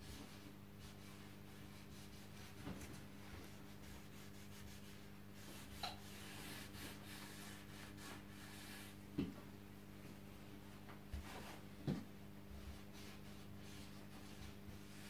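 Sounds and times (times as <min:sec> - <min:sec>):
brush scrubbing wood: 0:00.0 - 0:08.9, 0:12.6 - 0:15.0.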